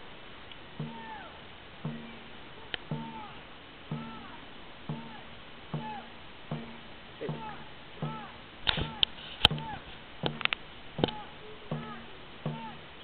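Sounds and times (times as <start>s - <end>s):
crew rhythmic calls: 0.6s - 13.0s
sharp clacks: 4.9s - 12.8s.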